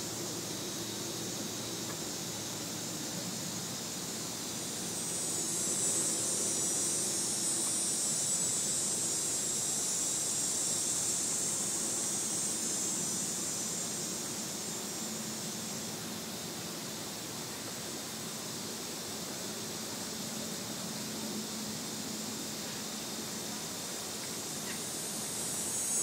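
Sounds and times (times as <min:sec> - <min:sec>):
cicada buzzing: 0:00.0 - 0:26.0.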